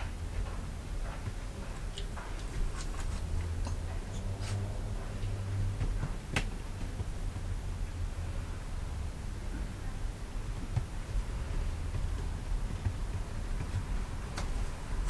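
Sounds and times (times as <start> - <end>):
steady low hum: 0.0 - 15.0
light ticks and taps: 1.9 - 3.8.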